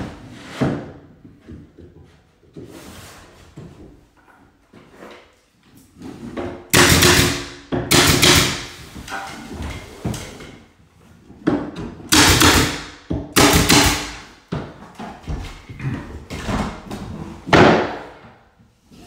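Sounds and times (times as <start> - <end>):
nail gun shots: 6.8 - 8.8, 12.1 - 14.3.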